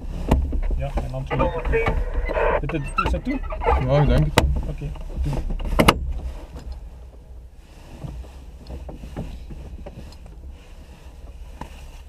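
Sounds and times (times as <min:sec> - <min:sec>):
steady low rumble: 0:00.0 - 0:08.6
small knocks and rustles: 0:04.2 - 0:12.0.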